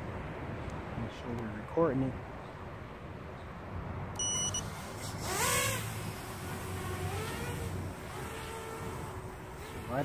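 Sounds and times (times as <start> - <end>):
short high beep: 4.2 - 4.7
quadcopter motors whining: 4.2 - 10.0.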